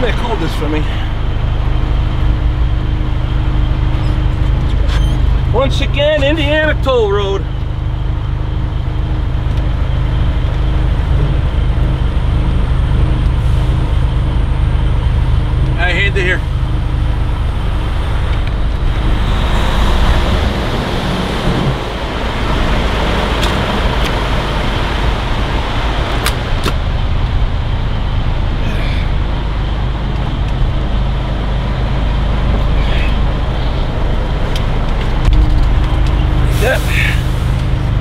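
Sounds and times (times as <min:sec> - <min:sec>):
diesel truck engine: 0:00.0 - 0:38.0
road noise: 0:00.0 - 0:38.0.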